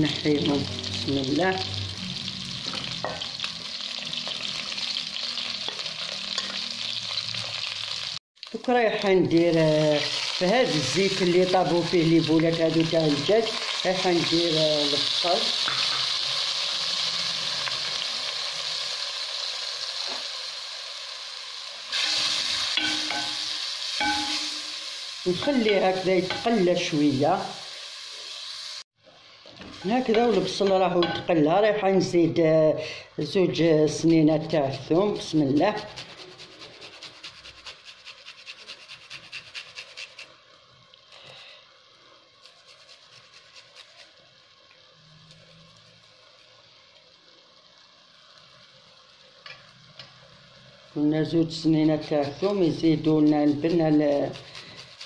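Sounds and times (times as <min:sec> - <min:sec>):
onion sizzling in oil: 0:00.0 - 0:55.0
garlic rasping on metal grater: 0:34.1 - 0:40.4, 0:52.0 - 0:55.0.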